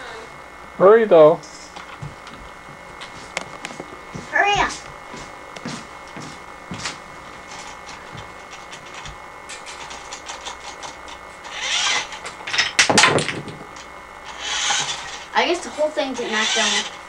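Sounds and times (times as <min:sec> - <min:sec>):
toy car whirring: 0:08.5 - 0:13.1, 0:14.2 - 0:17.0
toy car winding clicks: 0:11.5 - 0:12.2, 0:14.3 - 0:15.3, 0:16.2 - 0:17.0
wooden blocks clattering: 0:12.0 - 0:13.9.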